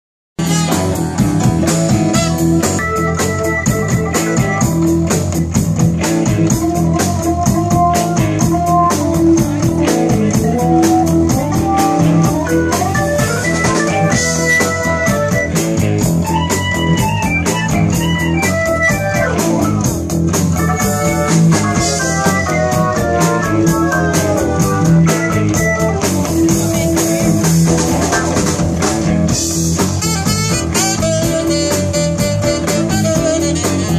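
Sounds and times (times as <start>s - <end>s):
saxophone: 0.4s - 3.2s, 29.8s - 33.9s
drums: 0.4s - 33.9s
electric guitar: 0.4s - 33.9s
live blues-rock band: 0.4s - 33.9s.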